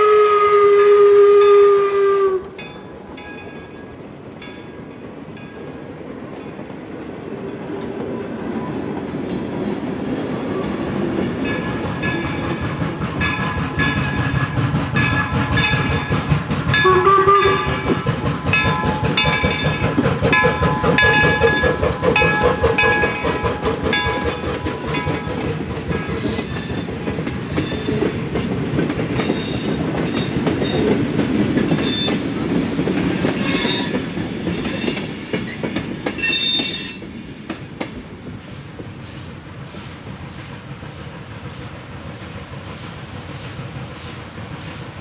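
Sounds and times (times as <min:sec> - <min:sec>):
distant train running: 0:00.0 - 0:45.0
train rumbling: 0:00.0 - 0:45.0
wheels clicking over rail joints: 0:02.6 - 0:38.1
train wheels squealing: 0:26.0 - 0:28.1, 0:29.2 - 0:31.0, 0:31.7 - 0:35.6, 0:36.2 - 0:37.5.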